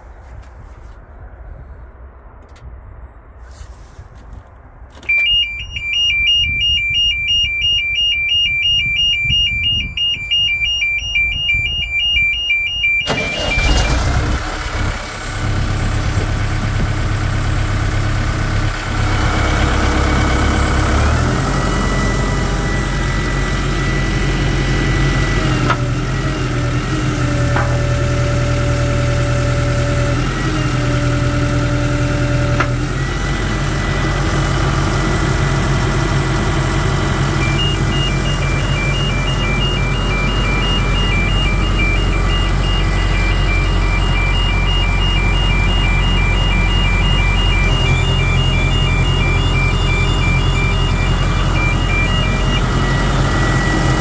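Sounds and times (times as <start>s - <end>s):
fast-pulsing electronic beeping siren: 5.2s - 14.0s, 37.4s - 54.0s
diesel engine cranking and running: 12.4s - 54.0s.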